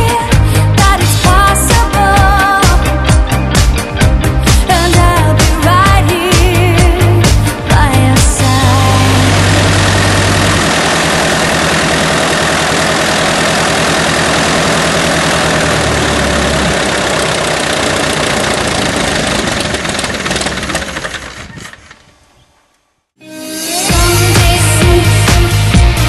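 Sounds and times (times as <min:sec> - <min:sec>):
propeller running down: 0:00.0 - 0:22.3
piston engine and propeller running: 0:06.4 - 0:22.3.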